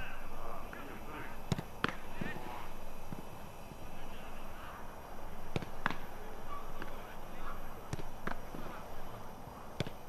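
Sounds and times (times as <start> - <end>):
football being kicked: 1.5 - 2.4, 5.5 - 6.0, 7.8 - 8.7, 9.8 - 10.0.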